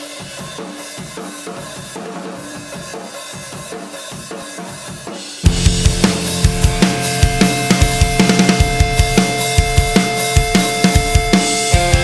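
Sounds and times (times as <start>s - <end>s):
drum kit beat: 0.0s - 12.0s
repeated low notes: 5.5s - 10.9s.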